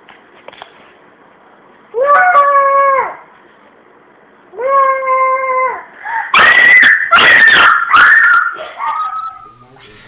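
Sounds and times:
child screaming: 2.0s - 3.2s, 4.6s - 9.5s
child wailing: 2.0s - 3.2s, 4.6s - 9.4s.

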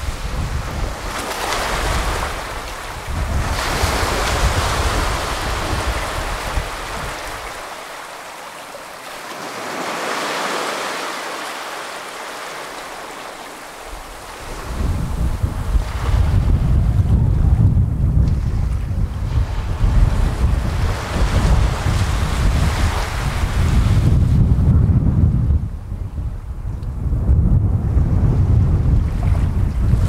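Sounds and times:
wind rumble on microphone: 0.0s - 7.8s, 13.7s - 30.0s
small waves washing on shore: 0.0s - 17.4s, 18.2s - 24.0s.

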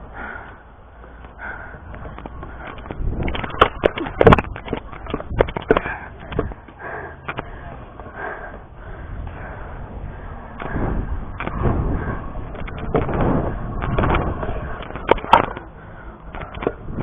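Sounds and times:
scooter wheels rolling on concrete: 0.0s - 17.0s
scooter clacks and knocks: 1.9s - 7.4s, 12.5s - 15.7s.

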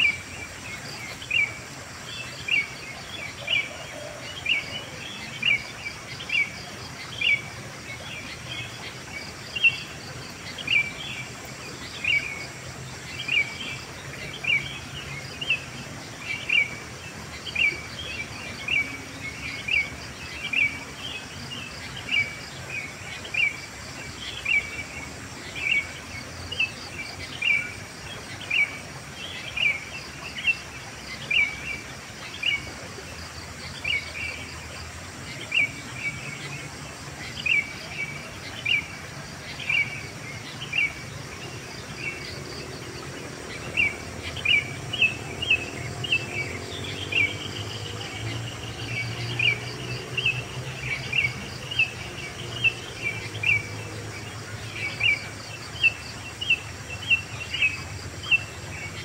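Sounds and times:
birds chirping: 0.0s - 59.0s.

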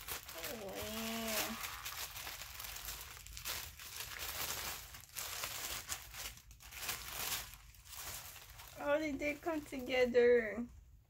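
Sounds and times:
plastic and bubble wrap crinkling: 0.0s - 10.7s.

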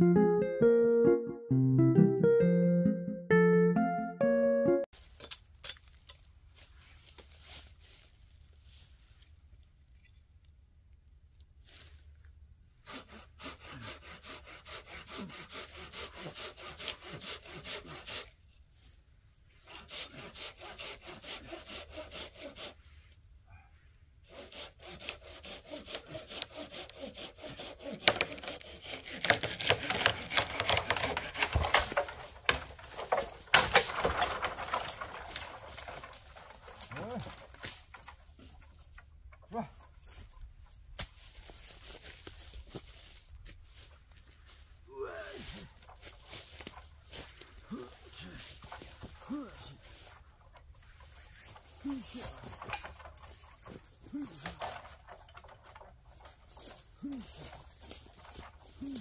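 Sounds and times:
hand saw cutting wood: 12.8s - 18.3s, 19.6s - 22.9s, 24.3s - 38.9s, 45.5s - 59.0s.

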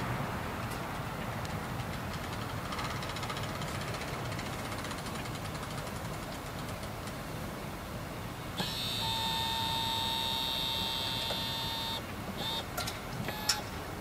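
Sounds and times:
high-pitched electronic tone: 8.6s - 12.6s
short beeps: 8.6s - 12.7s.

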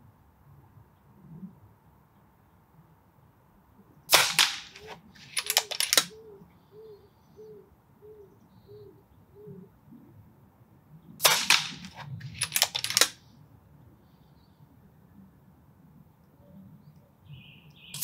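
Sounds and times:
air rifle shot: 4.1s - 6.1s, 11.2s - 13.2s
rifle action clicking: 4.1s - 6.1s, 11.2s - 13.2s.

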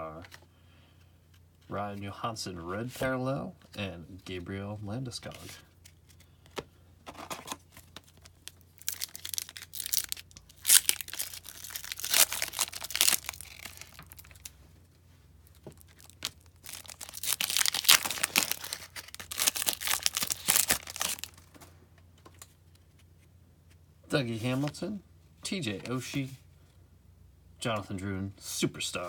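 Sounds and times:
foil wrapper tearing and crinkling: 8.0s - 14.5s, 15.8s - 21.5s.

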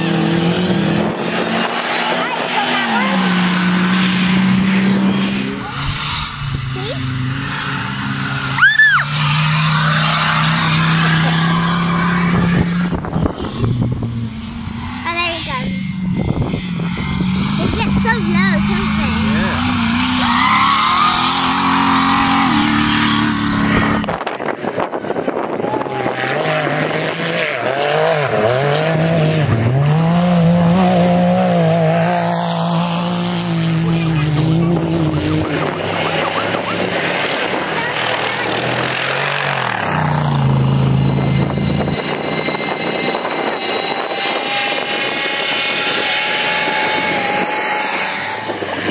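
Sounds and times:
race car engine revving: 0.0s - 48.9s
high squeal: 1.8s - 13.7s, 14.3s - 24.1s, 35.5s - 48.9s.

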